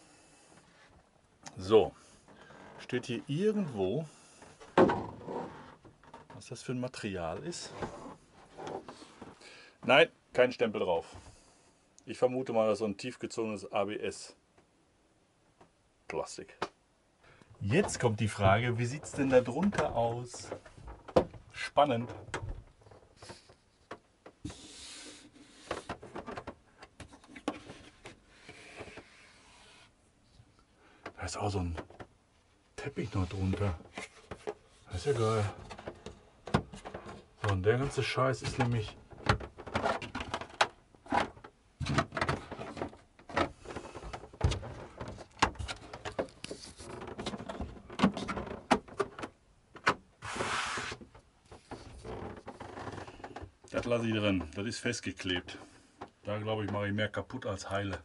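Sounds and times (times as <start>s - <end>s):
plastic scraping rub: 4.6s - 6.3s, 22.8s - 30.0s, 32.9s - 49.1s, 50.2s - 53.5s
rustling scrape: 46.2s - 47.4s, 50.2s - 51.0s.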